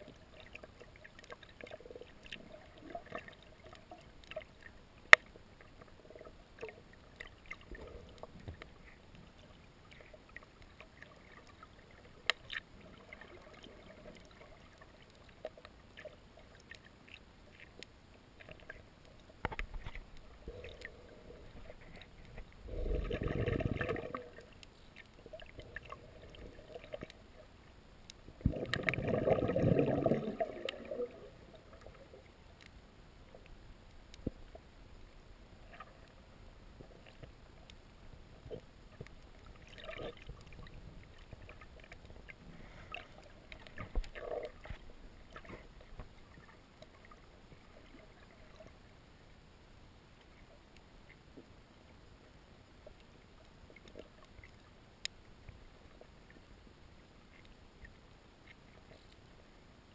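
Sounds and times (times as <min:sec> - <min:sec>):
underwater clicks and crackles: 0:00.0 - 0:59.9
rushing gurgling water: 0:19.5 - 0:24.6, 0:28.3 - 0:32.2, 0:39.4 - 0:48.6.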